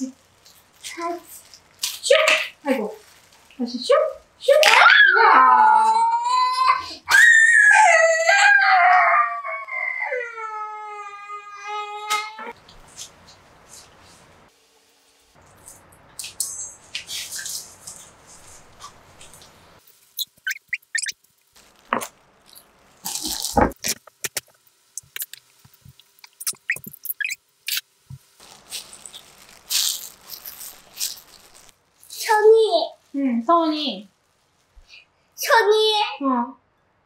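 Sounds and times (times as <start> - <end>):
plastic gloves rustling: 0.0 - 4.7, 12.5 - 35.0.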